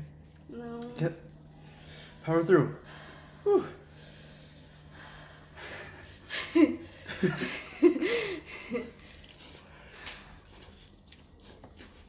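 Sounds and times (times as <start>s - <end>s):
man and woman laughing: 5.6s - 9.0s.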